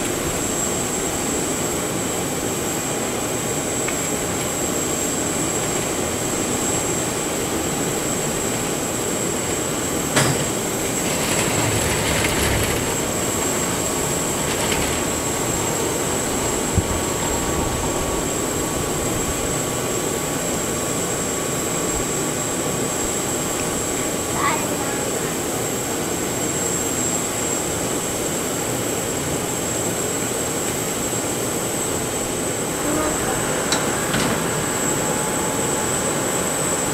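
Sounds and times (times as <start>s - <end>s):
auxiliary power unit whine: 0.0s - 36.9s.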